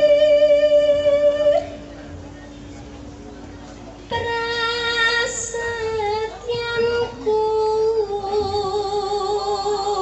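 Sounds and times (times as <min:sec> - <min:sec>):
woman singing into a microphone: 0:00.0 - 0:01.8, 0:04.1 - 0:10.0.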